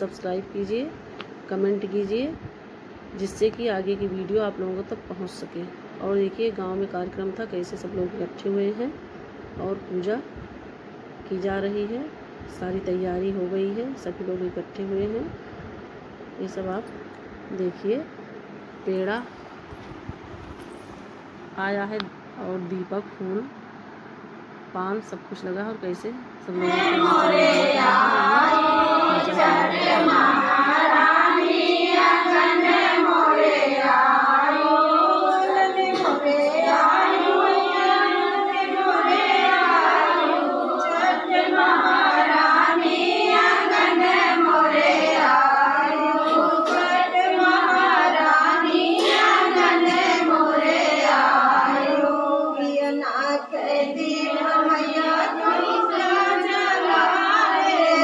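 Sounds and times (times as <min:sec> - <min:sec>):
women singing devotional folk song: 0:26.4 - 0:58.0.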